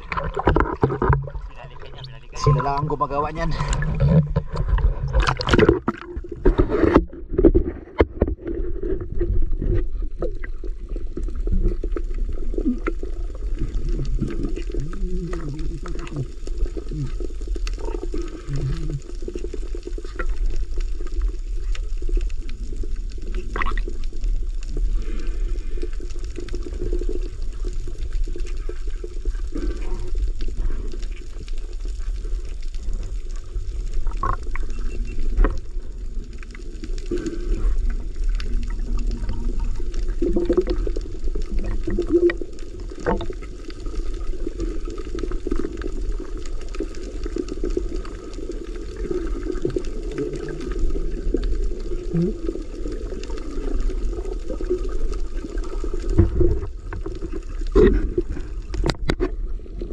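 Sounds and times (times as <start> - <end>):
underwater low rumble: 0.0 - 59.9.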